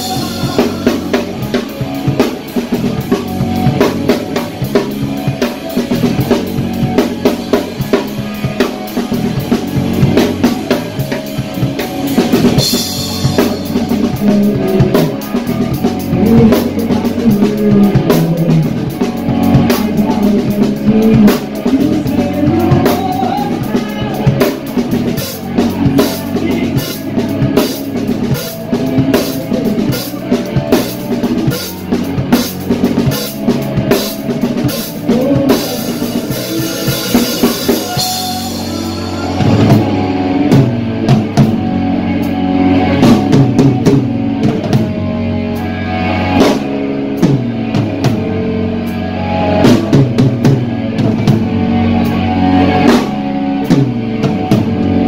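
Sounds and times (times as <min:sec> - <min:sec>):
drums and cymbals: 0:00.0 - 0:55.0
rock guitar: 0:00.0 - 0:55.0.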